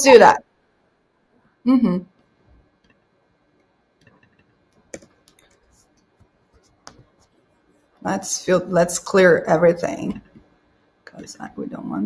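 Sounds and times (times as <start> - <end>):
keyboard typing: 4.0 - 7.4.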